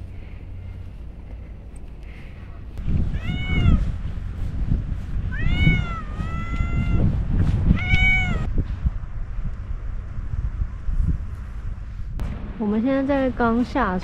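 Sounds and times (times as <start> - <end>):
cat meowing: 3.1 - 3.9, 5.3 - 7.1, 7.7 - 8.5.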